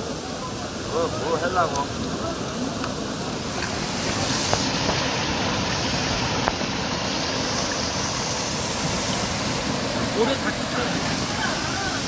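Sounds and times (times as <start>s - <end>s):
stream water rushing over rocks: 0.0s - 12.0s.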